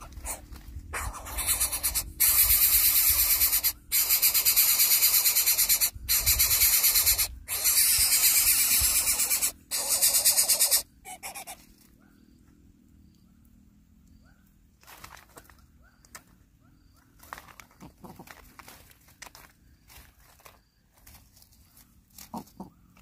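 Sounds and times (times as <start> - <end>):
chick begging with harsh rasps: 0.0 - 11.6.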